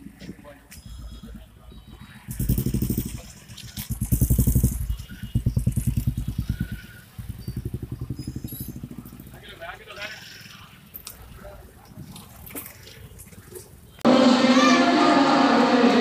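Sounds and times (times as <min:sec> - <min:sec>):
motorcycle engine running: 0:00.0 - 0:12.4.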